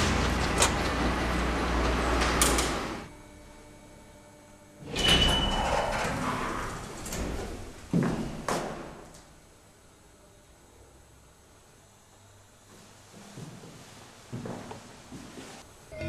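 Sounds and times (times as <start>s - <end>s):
lift doors sliding open: 0.0s - 3.1s, 4.8s - 9.2s.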